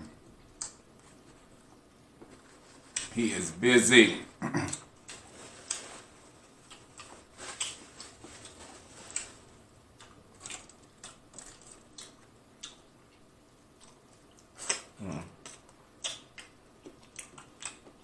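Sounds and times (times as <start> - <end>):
mouth chewing food: 0.0 - 3.2, 4.4 - 18.0.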